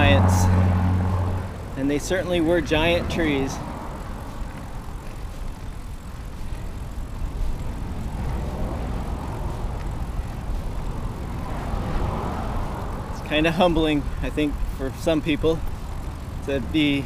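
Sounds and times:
low road rumble: 0:00.0 - 0:17.0
wind noise: 0:02.6 - 0:13.4.

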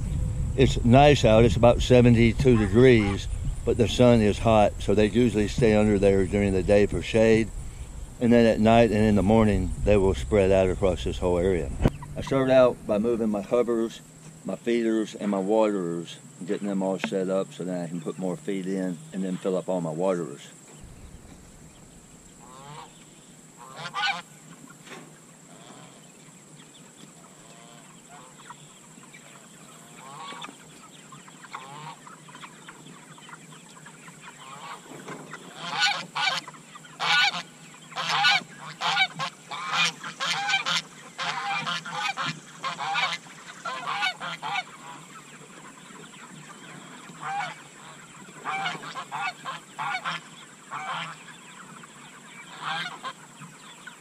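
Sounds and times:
geese honking: 0:00.0 - 0:16.8, 0:17.6 - 0:54.0.

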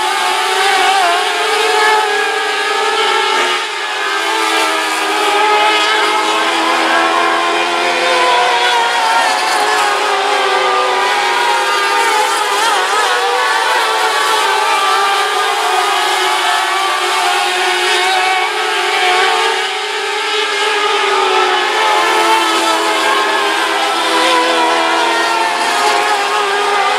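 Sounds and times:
race car engines: 0:00.0 - 0:26.9.

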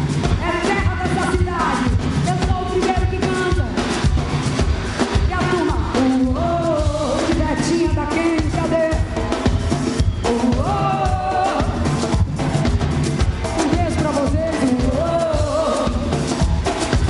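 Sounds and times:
drums and percussion: 0:00.0 - 0:17.0
person singing: 0:10.2 - 0:12.0, 0:13.6 - 0:16.4.

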